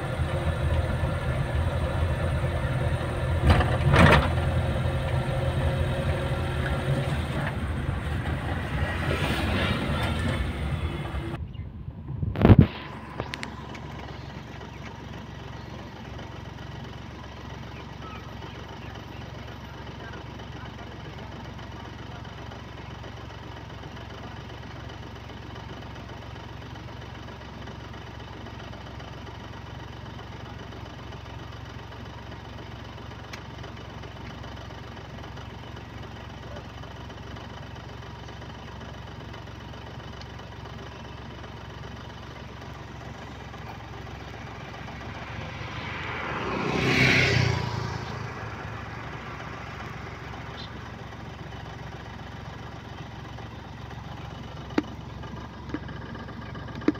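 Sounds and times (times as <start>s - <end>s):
vehicle passing by: 0.0s - 11.4s, 44.2s - 50.8s
vehicle engine idling: 0.0s - 56.9s.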